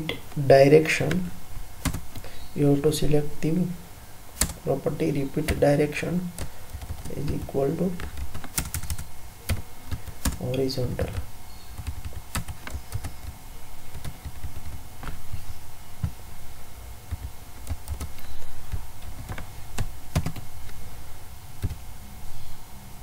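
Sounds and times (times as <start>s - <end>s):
computer keyboard typing: 1.8s - 2.2s, 4.4s - 4.6s, 5.4s - 5.7s, 6.3s - 15.2s, 17.1s - 20.4s, 21.6s - 21.8s.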